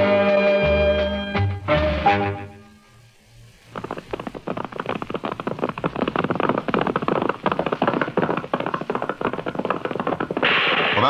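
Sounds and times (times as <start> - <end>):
galloping horse hoofbeats: 3.5 - 11.0.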